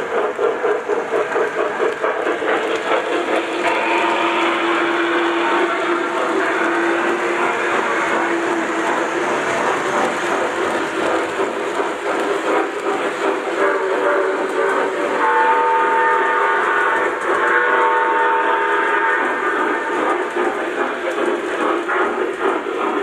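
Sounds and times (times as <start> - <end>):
model train wheels rattling: 0.0 - 23.0
model steam locomotive whistle: 3.4 - 9.7, 13.5 - 20.4.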